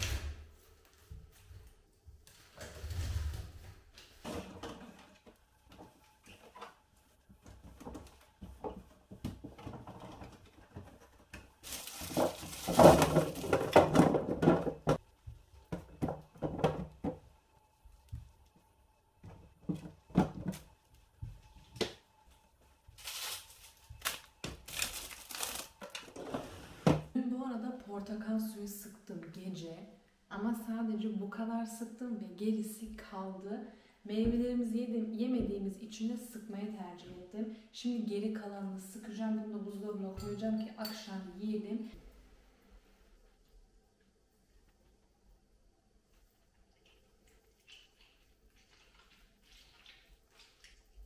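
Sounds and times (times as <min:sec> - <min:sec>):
rustling and clatter: 0:02.4 - 0:17.3
objects knocking and clicking: 0:07.5 - 0:15.0, 0:15.7 - 0:17.3.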